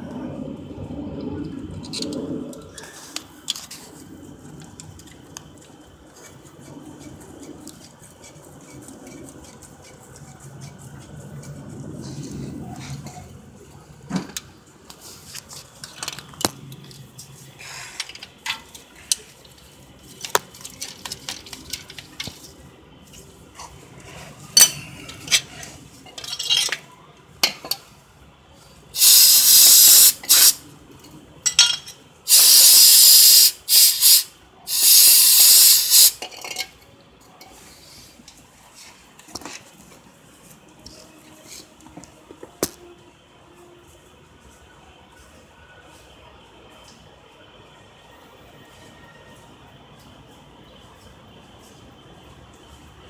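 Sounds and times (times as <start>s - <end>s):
light clicks and knocks of parts: 14.3s - 23.8s
aerosol spray hissing: 29.0s - 30.6s, 32.3s - 36.2s.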